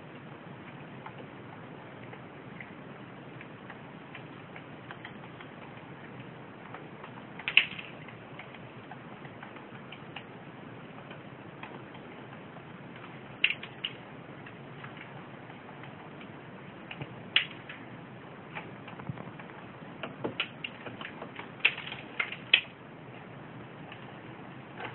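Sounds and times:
birds pecking on wood: 3.4s - 17.9s, 18.5s - 22.8s.

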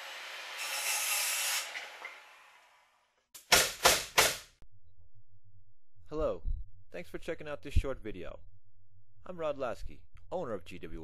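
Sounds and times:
power saw cutting wood: 0.0s - 2.9s.

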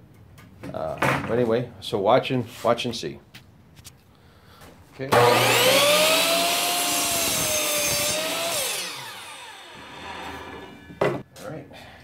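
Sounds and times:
electric chop saw cutting wood: 5.1s - 11.0s.

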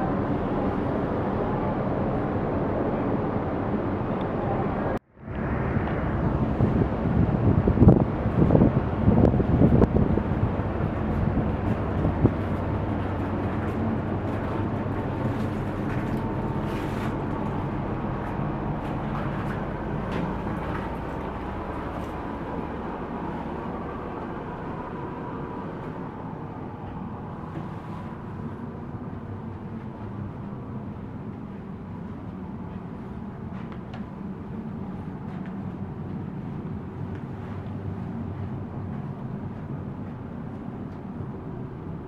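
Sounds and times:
ship engines humming: 0.0s - 42.0s.

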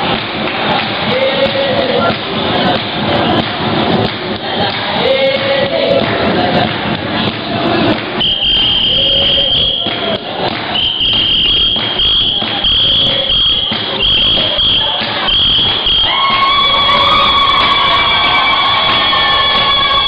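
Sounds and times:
voices: 0.6s - 20.0s
shrill high held note: 10.8s - 20.0s.

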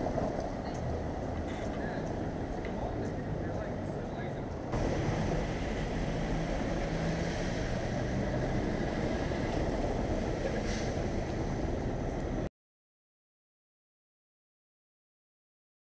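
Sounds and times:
cars driving on cobblestones: 0.0s - 12.5s
engine hum: 0.0s - 12.5s.

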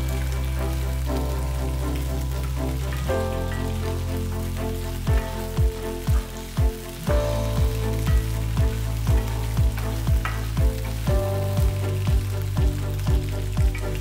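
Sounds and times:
food sizzling in oil: 0.0s - 14.0s
background music with drum beat: 5.1s - 14.0s.

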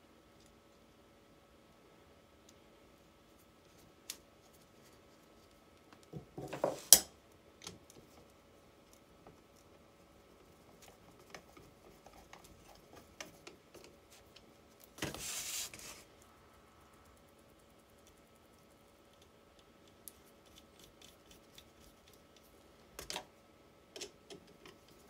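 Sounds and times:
scraping rustle: 15.0s - 16.2s.

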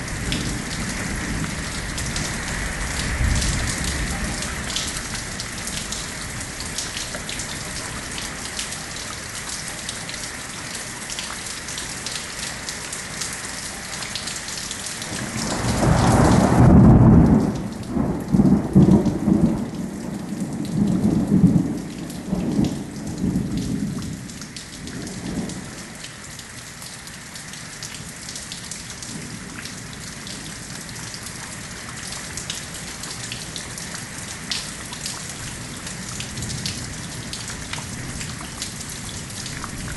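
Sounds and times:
thunder rumbling: 0.0s - 6.2s, 15.1s - 24.2s
steady rain falling: 0.0s - 39.9s.

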